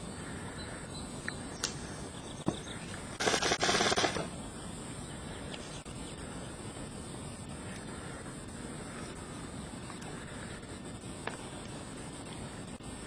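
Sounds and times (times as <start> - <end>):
steady hiss: 0.0 - 13.0
airsoft gun full-auto burst: 3.2 - 4.3
sharp clicks: 3.2 - 4.3.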